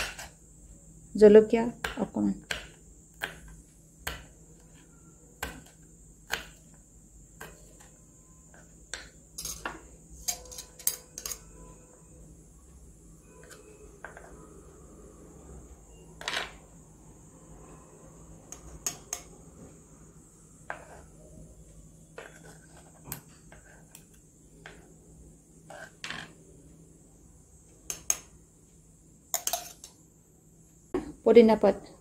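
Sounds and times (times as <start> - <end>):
spoon clinking against glass: 9.4 - 11.6, 29.4 - 30.0.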